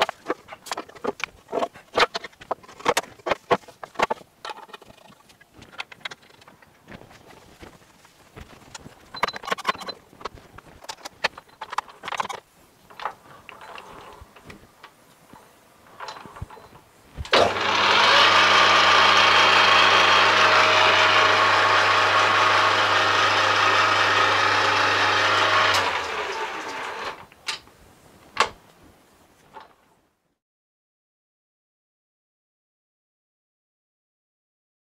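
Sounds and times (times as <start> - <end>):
lathe motor humming with gear whine: 17.3 - 27.2.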